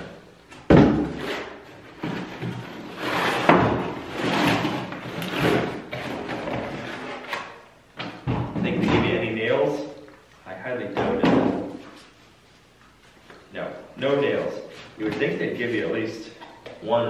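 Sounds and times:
cardboard rustling and scraping: 1.0s - 7.4s.

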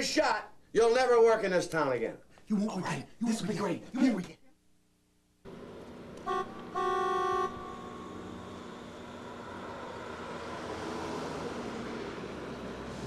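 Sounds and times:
street traffic noise: 5.5s - 13.0s
car horn honking: 6.2s - 8.4s.

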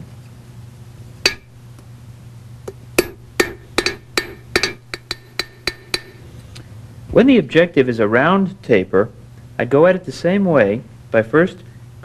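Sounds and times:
hammer striking metal on anvil: 1.2s - 1.6s, 2.7s - 6.2s.

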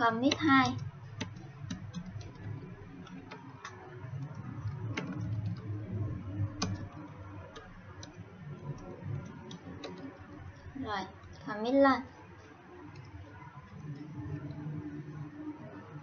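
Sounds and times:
low steady hum: 0.0s - 16.0s
keyboard keystrokes clicking: 0.1s - 11.4s.

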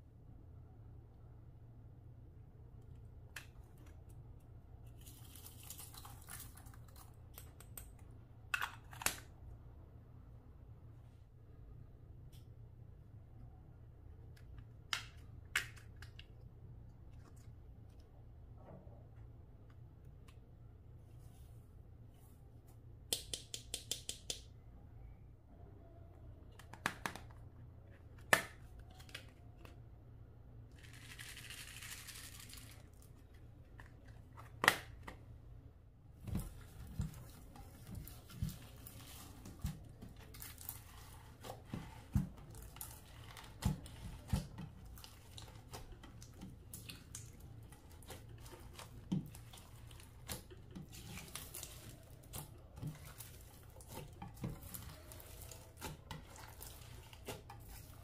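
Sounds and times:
crinkling: 30.7s - 35.1s, 36.2s - 58.0s.

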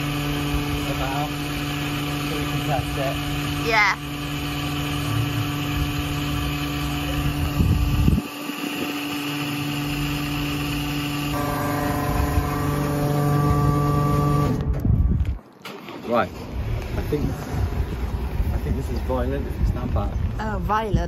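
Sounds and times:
gas dispenser pump humming: 0.0s - 14.7s
higher pump tones: 0.0s - 14.8s.

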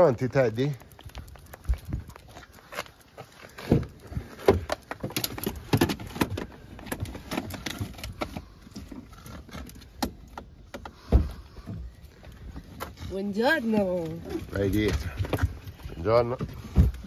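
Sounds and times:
heavy thump: 11.0s - 11.9s.

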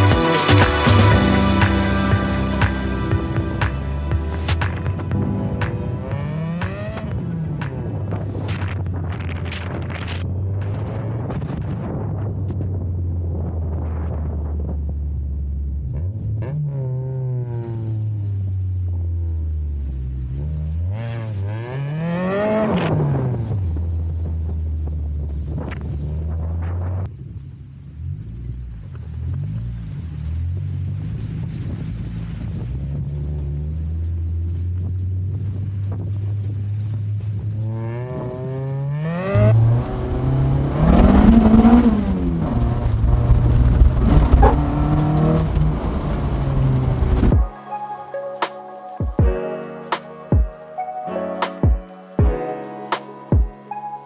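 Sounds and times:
car engine revving under load: 0.0s - 47.4s.

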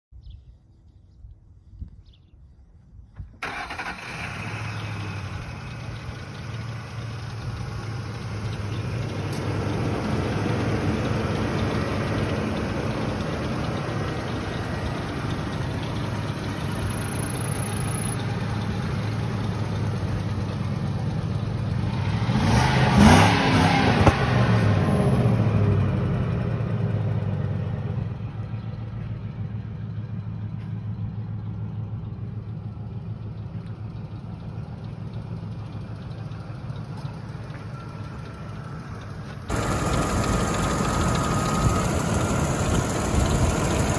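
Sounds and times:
engine idling: 3.0s - 22.0s, 26.0s - 43.9s
pickup engine starting: 3.2s - 21.1s, 33.1s - 43.9s
engine revving: 21.8s - 26.8s, 39.5s - 43.9s.

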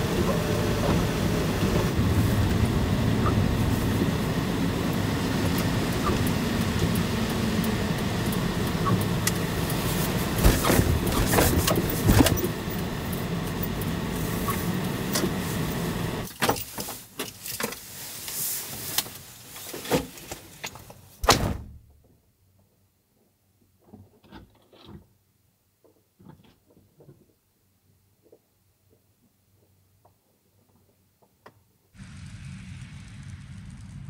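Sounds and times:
truck engine and road noise: 0.0s - 21.2s, 32.0s - 34.0s.

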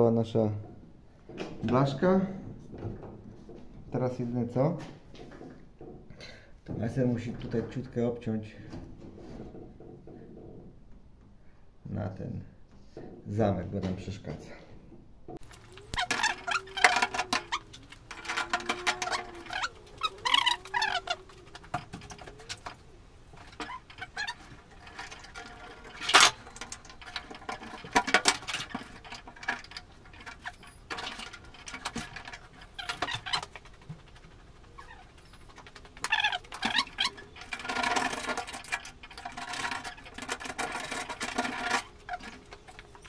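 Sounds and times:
metallic clicks and knocks: 15.3s - 43.0s
scratchy rubbing on sheet metal: 15.5s - 43.0s.

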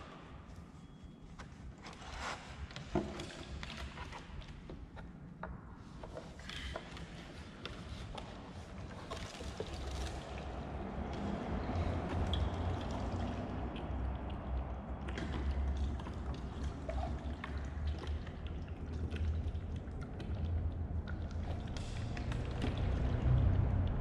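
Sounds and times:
water pouring into plastic container: 7.6s - 24.0s.

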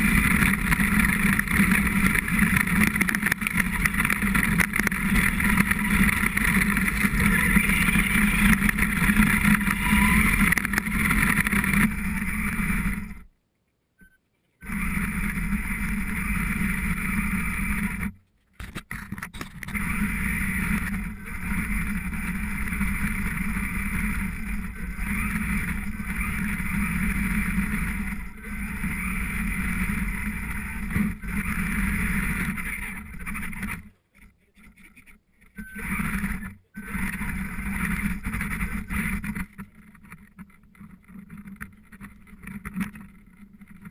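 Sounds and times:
electric toy truck motor: 0.0s - 13.3s, 19.7s - 33.7s
tyres on gravel and dirt: 0.0s - 13.3s.

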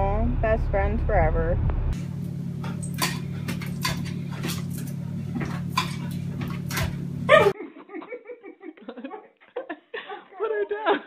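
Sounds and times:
steady low hum: 0.0s - 7.6s.

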